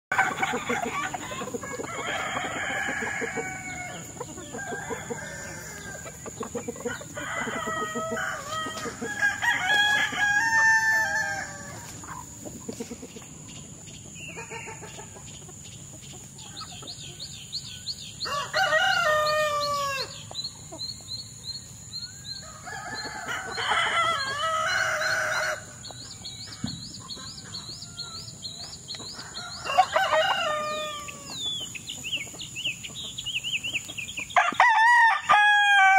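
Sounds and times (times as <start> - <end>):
roosters crowing: 0.1 - 13.0, 18.1 - 20.3, 22.1 - 31.7, 34.3 - 35.9
hens clucking: 0.1 - 17.2.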